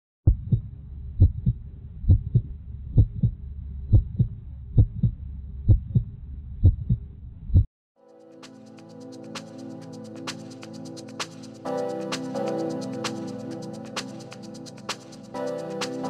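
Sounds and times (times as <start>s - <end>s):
heartbeat double thump: 0.2s - 7.7s.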